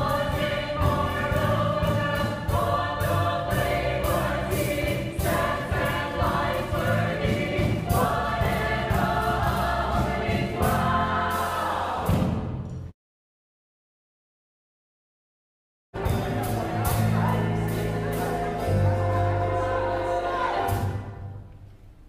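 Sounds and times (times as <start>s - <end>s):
mixed chorus singing: 0.0s - 12.3s, 16.0s - 21.4s
sharp percussion strokes: 0.0s - 12.5s
drums: 0.0s - 12.9s, 16.0s - 21.5s
piano: 0.0s - 12.9s, 16.0s - 22.0s.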